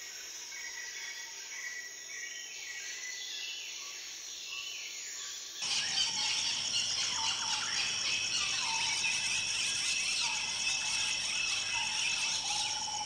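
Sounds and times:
birds chirping and trilling: 0:05.6 - 0:13.0
insects buzzing: 0:05.6 - 0:13.0.

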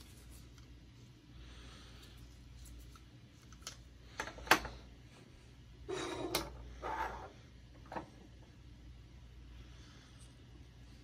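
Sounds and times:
scraping on wooden desk: 0:05.9 - 0:07.3.

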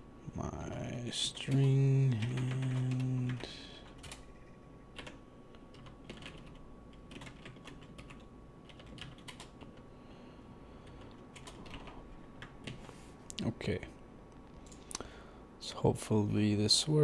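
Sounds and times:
typing on computer keyboard: 0:01.5 - 0:04.2, 0:05.0 - 0:09.8, 0:10.8 - 0:12.8.

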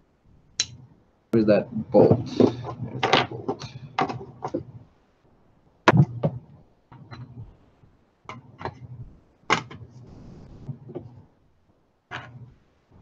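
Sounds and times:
metal clicks and knocks: 0:02.4 - 0:04.7.

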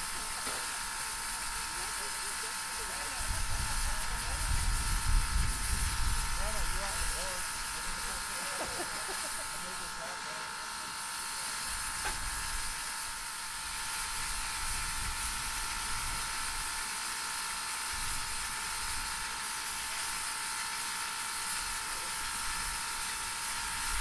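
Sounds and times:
steam locomotive hissing: 0:00.0 - 0:10.6.

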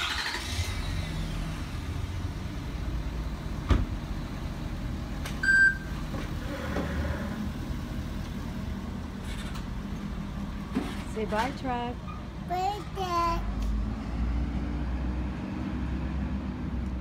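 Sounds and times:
truck engine rumbling: 0:00.0 - 0:17.0
short high beep: 0:05.4 - 0:05.9.

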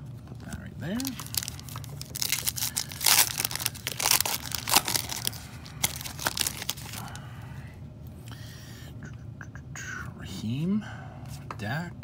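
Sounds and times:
foil wrapper crinkling and tearing: 0:00.5 - 0:07.2.

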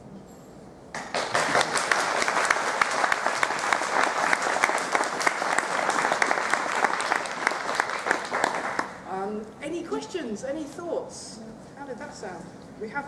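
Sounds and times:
audience applauding: 0:01.0 - 0:09.1.

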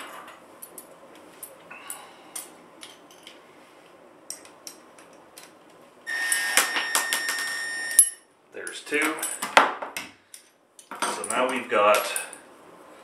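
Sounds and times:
cordless drill whining: 0:06.1 - 0:08.0.

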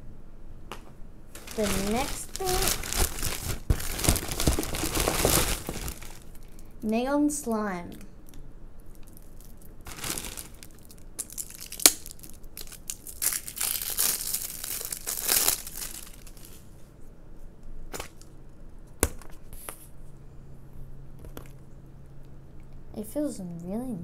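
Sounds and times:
plastic crinkling and tearing: 0:01.4 - 0:06.7, 0:08.8 - 0:16.7.

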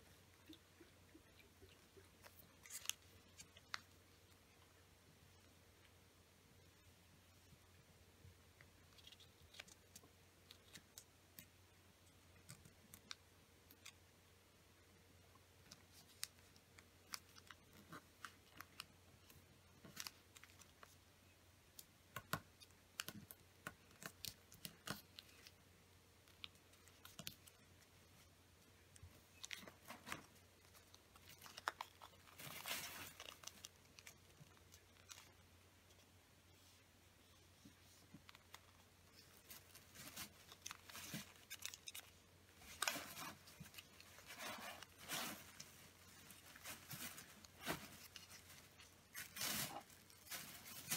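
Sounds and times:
paper being folded and creased: 0:29.3 - 0:36.0, 0:37.6 - 0:50.9.

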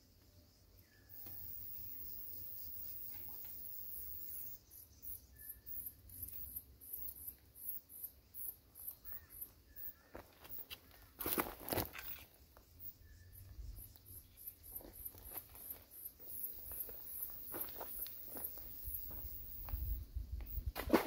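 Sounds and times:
insects buzzing in pulses: 0:00.0 - 0:21.0.

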